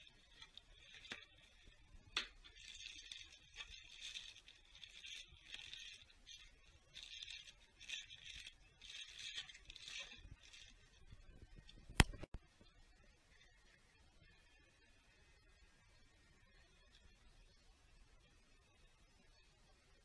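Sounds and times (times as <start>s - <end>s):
plastic bag crinkling: 0.0s - 12.3s.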